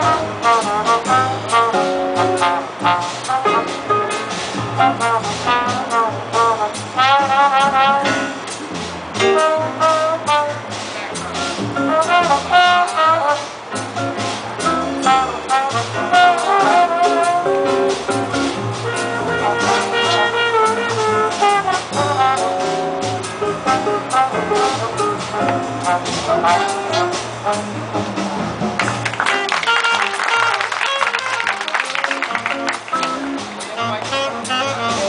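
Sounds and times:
drum kit: 0:00.0 - 0:35.0
guitar: 0:00.0 - 0:35.0
trombones: 0:00.0 - 0:35.0
saxophones: 0:15.0 - 0:17.9, 0:18.8 - 0:27.8, 0:29.3 - 0:35.0.

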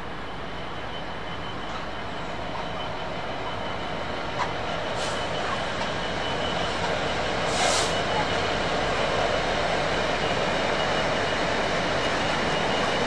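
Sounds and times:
train rumble: 0:00.0 - 0:13.0.

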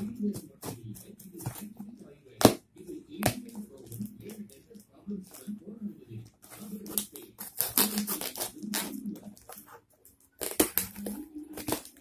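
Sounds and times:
knife cutting cardboard and tape: 0:06.4 - 0:09.8, 0:10.4 - 0:12.0.

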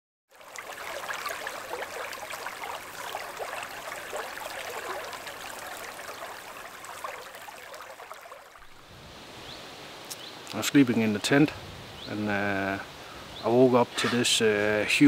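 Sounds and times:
creek babbling over stones: 0:00.3 - 0:09.3.

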